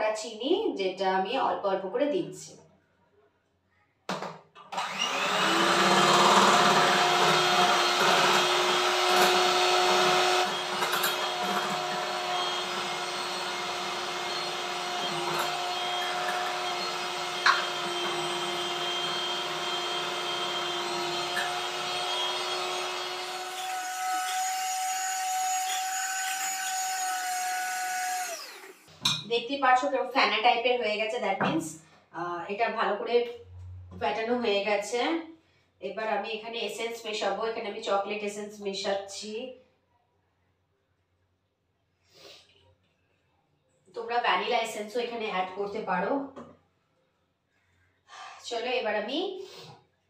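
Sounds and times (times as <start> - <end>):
electric hand mixer whining: 4.7 - 29.0.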